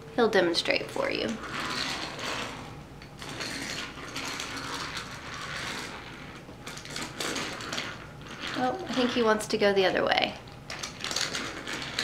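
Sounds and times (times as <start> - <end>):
toy train wheels rolling on track: 0.9 - 2.6, 3.2 - 9.6, 10.7 - 12.0.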